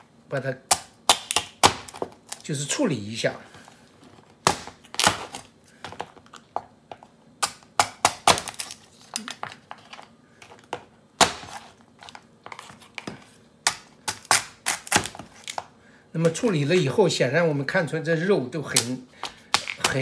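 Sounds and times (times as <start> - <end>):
cleaver chopping crab shells: 0.7 - 2.4, 7.4 - 8.8, 13.6 - 15.2, 18.7 - 20.0.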